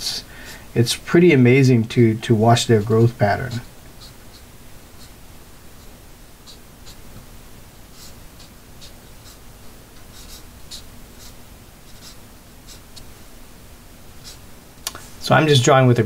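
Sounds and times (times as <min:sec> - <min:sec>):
marker scratching on paper: 0:02.7 - 0:13.4, 0:14.0 - 0:14.6.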